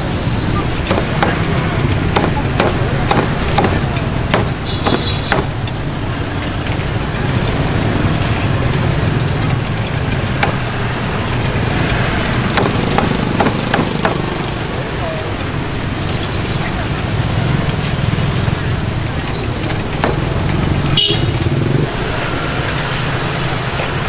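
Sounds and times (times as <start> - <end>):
low rumble of street traffic: 0.0 - 24.0
cleaver chopping on wooden block: 0.8 - 5.6, 10.4 - 10.9, 12.2 - 14.4, 20.0 - 20.4.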